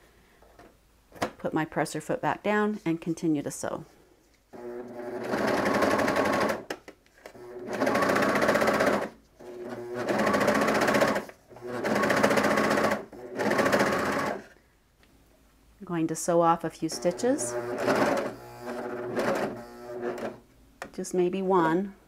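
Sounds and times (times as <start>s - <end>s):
overlocker sewing machine stitching: 4.6s - 6.7s, 7.3s - 14.5s, 17.0s - 20.4s.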